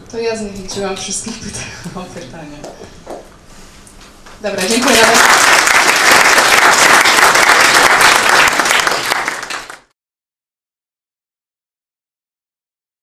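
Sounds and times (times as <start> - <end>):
audience applauding: 4.6 - 9.9.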